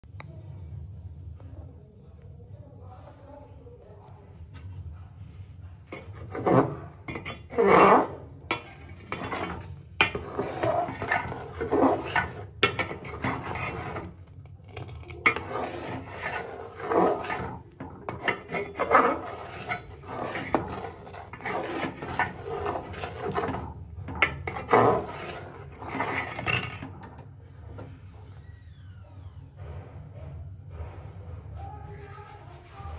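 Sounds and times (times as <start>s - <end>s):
metal ladle scraping a pot: 5.9s - 27.9s.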